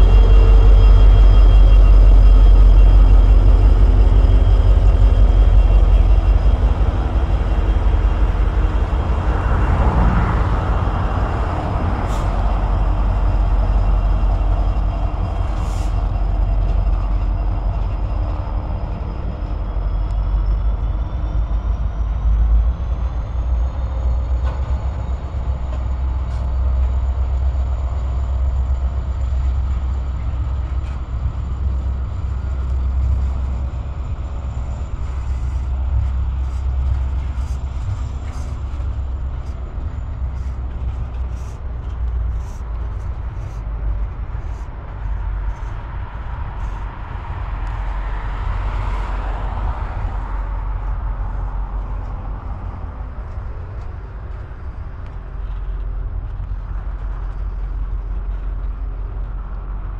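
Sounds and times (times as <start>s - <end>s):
train rumbling on the track: 0.0s - 59.9s.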